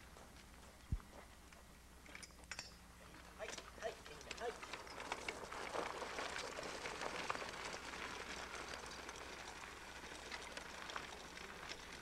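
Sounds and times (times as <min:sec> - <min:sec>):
cart wheels crunching on gravel: 0:03.0 - 0:12.0.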